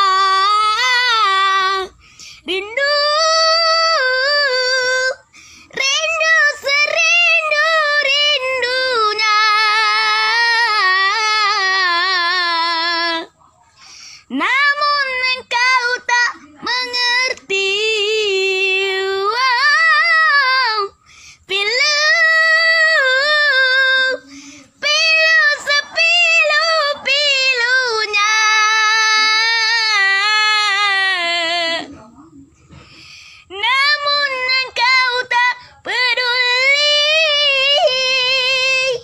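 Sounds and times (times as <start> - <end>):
boy singing in high voice: 0.0 - 32.1, 32.7 - 39.0.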